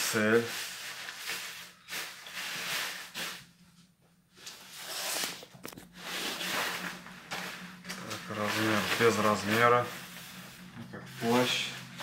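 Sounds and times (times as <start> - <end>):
nylon jacket rustling: 4.6 - 12.0.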